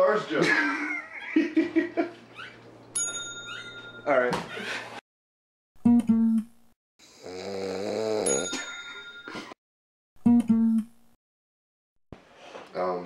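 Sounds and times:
man snoring: 7.0 - 8.4.

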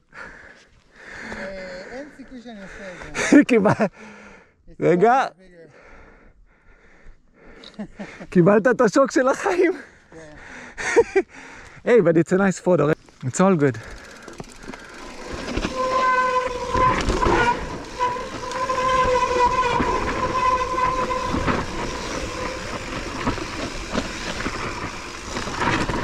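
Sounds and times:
bicycle hub buzzing whine: 13.7 - 26.0
bike knocks and rattles: 14.0 - 26.0.

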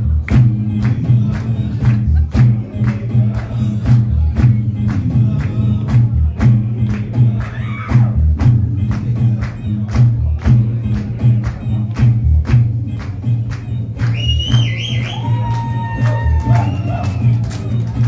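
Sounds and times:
drum beat: 0.0 - 18.0.

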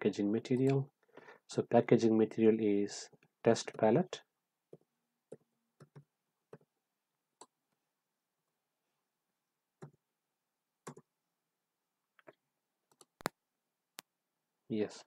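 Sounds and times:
keyboard and mouse clicks: 4.7 - 6.7, 9.8 - 10.0, 10.8 - 11.1, 12.2 - 13.4.

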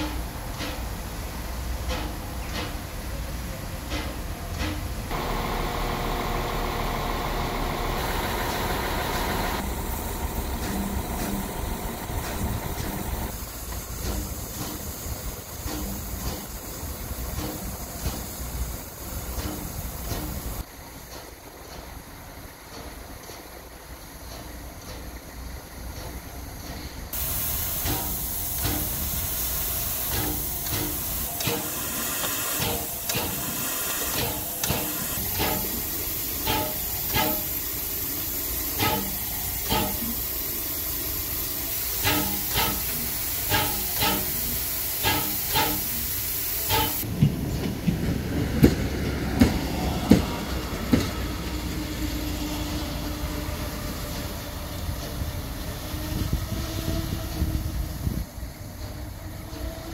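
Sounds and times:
diesel railcar rumbling by: 0.0 - 59.9
steam locomotive hissing steam: 0.0 - 59.9
wheels clacking over rail joints: 0.0 - 59.9
knocks and clanks: 30.0 - 37.6, 46.7 - 51.2.

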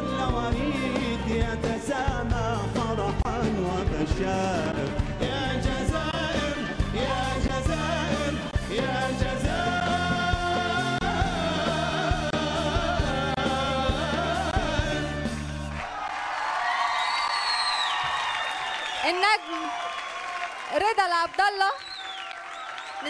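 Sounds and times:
man singing: 0.0 - 15.6
live band playing pop song: 0.0 - 15.8.

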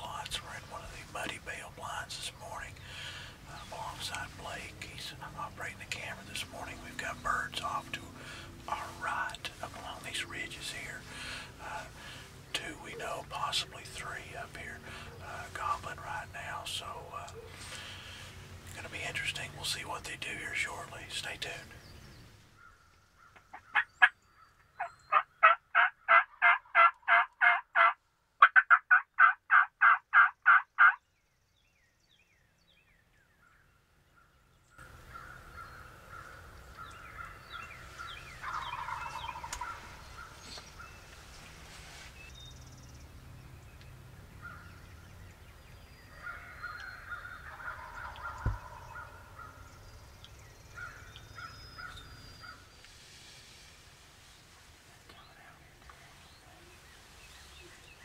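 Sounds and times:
small birds chirping: 0.0 - 26.1, 30.3 - 58.0
distant turkey gobbles: 22.6 - 31.0, 34.8 - 41.2, 46.2 - 49.7
loud turkey yelps: 25.1 - 31.0, 38.4 - 40.4, 46.2 - 49.6.

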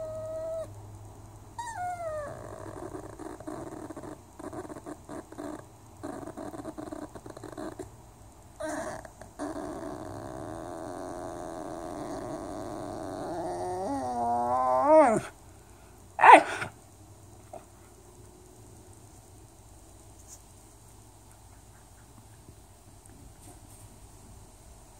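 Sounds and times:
dog whining and moaning: 0.0 - 0.8, 1.6 - 7.9, 8.6 - 15.4.

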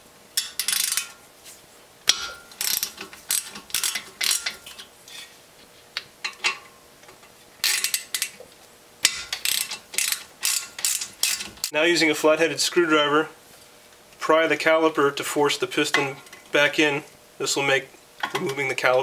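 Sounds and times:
ratchet driver clicking: 0.4 - 1.1, 2.1 - 4.6, 9.0 - 11.7.

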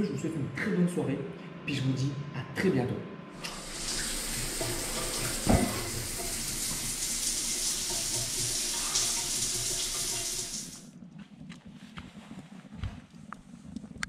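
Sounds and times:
shower spray running: 3.4 - 10.9.

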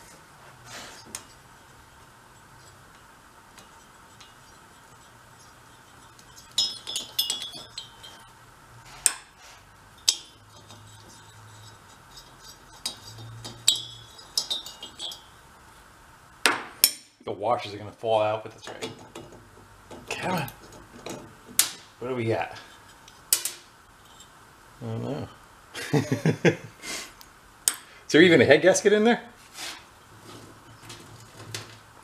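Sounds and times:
metallic clinks of wrench and hardware: 6.3 - 8.3.

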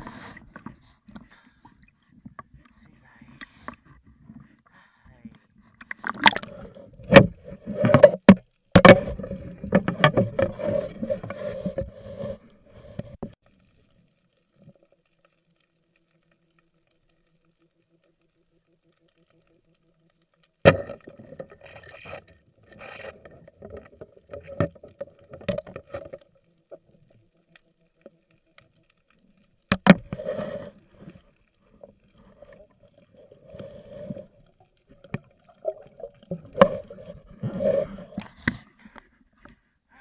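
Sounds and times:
gurgling underwater movement: 5.7 - 8.2, 30.0 - 38.9
muffled sharp knocks underwater: 7.1 - 10.8, 20.6 - 21.5.

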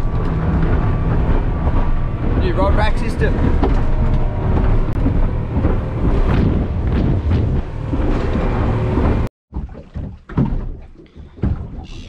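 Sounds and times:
wind buffeting microphone: 0.0 - 9.3
boat motor humming: 0.0 - 12.0.

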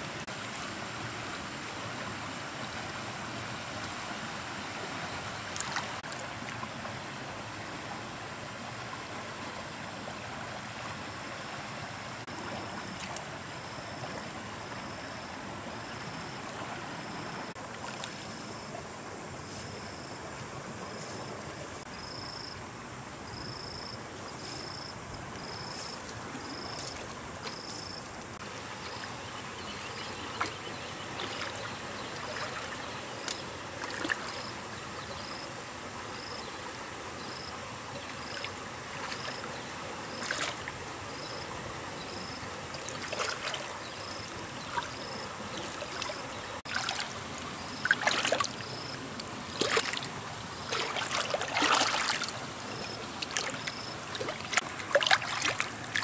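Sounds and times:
splashing in shallow water: 0.0 - 7.8, 12.2 - 15.0, 15.8 - 18.9, 24.6 - 35.4, 36.2 - 56.0
trickle of running water: 25.4 - 56.0
high insect chirp: 37.2 - 55.6.

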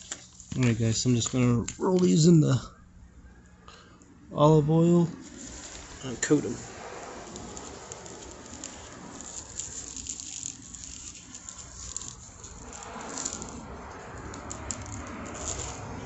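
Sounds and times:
plastic glove crinkling: 0.0 - 1.7, 5.2 - 16.0
low steady rumble: 0.1 - 16.0.

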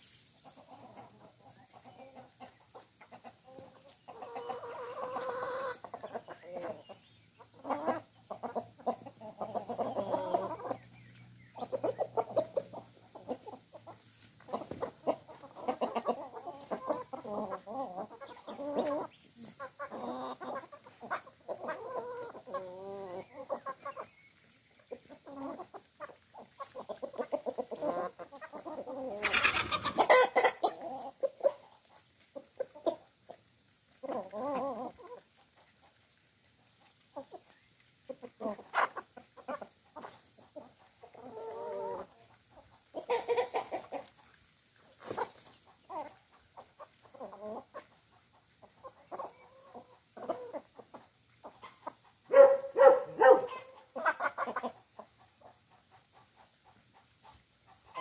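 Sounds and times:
hens clucking: 0.0 - 58.0.

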